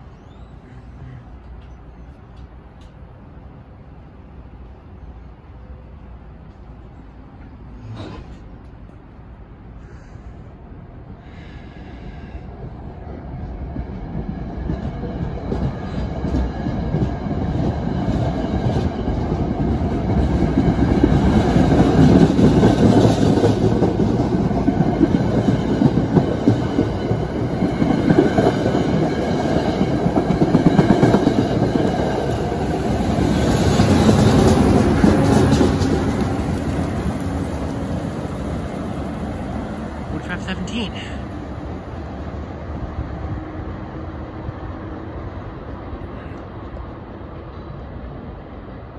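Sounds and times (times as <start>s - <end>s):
train wheels clacking on rail joints: 13.9s - 37.2s.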